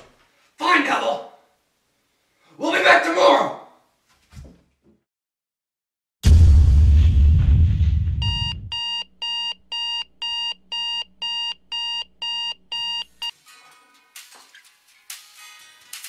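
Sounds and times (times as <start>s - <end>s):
deep boom: 6.2s - 8.7s
digital alarm clock beeping: 8.2s - 13.4s.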